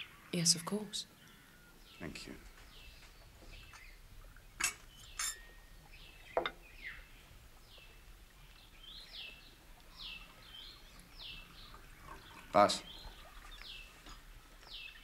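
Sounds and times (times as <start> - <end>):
birds chirping: 0.0 - 15.0
glass clinks: 4.6 - 5.6.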